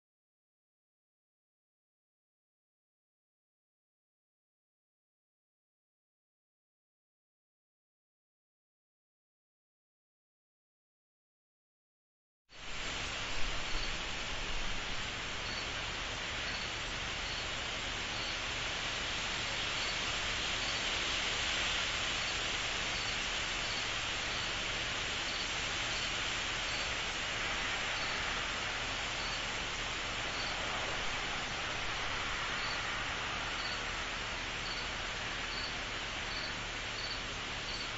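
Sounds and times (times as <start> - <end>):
insect chorus shrill hiss: 12.6 - 37.9.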